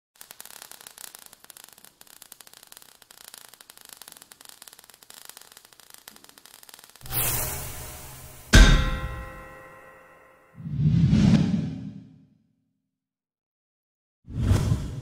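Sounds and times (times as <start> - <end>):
steady hiss: 0.2 - 8.5
crackle of sparks: 0.2 - 9.8.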